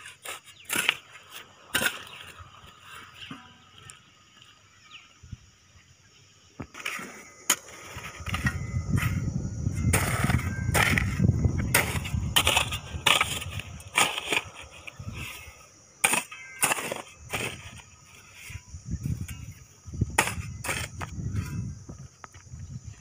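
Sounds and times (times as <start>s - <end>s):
hoe chopping gravelly soil: 0.0s - 3.6s, 6.6s - 22.1s.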